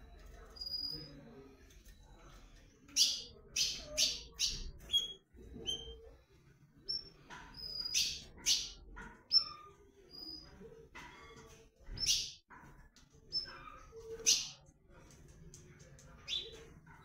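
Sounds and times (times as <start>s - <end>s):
bird song of quick notes: 6.8s - 10.5s.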